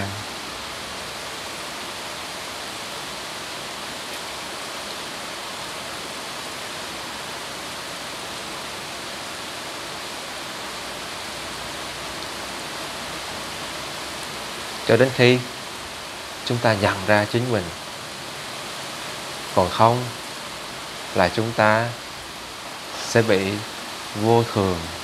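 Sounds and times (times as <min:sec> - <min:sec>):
steady background hiss: 0:00.0 - 0:25.0.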